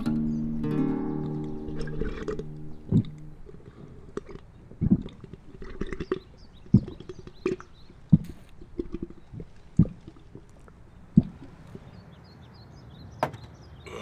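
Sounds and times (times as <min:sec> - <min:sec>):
small gurgles and clicks: 0:01.2 - 0:11.9
man gulping from bottle: 0:01.7 - 0:11.8.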